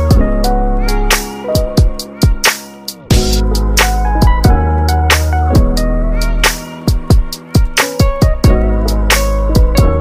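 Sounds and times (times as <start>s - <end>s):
drum hits: 1.2s - 4.6s
sliding deep bass notes: 3.1s - 6.4s.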